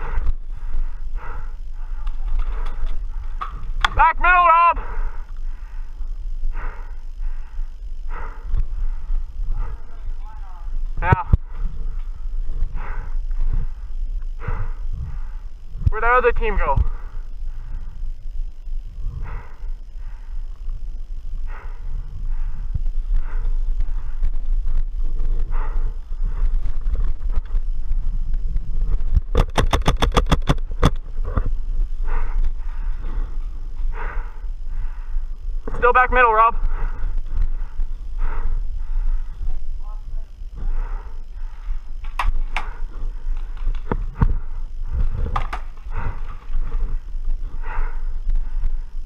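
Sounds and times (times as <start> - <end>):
steady low rumble: 0.0 - 49.0
paintball marker rapid firing: 29.3 - 31.0.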